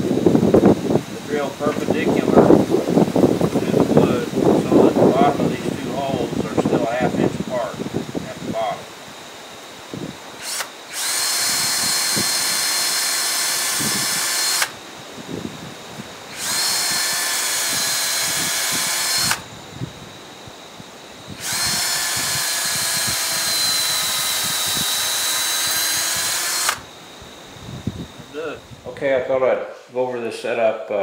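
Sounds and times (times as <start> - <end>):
cordless drill boring into log: 9.9 - 15.0, 16.2 - 19.8, 21.2 - 27.2.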